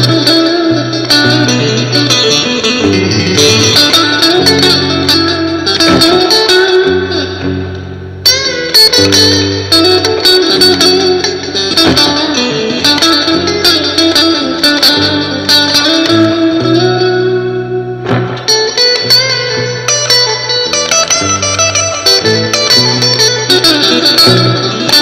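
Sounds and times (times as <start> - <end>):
bass notes: 0.0 - 24.9
electric guitar blues lead: 0.0 - 25.0.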